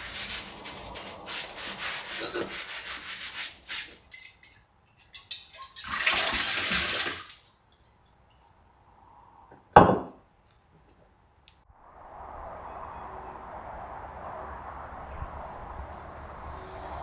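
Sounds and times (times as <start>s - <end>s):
tap water splashing: 4.1s - 7.8s.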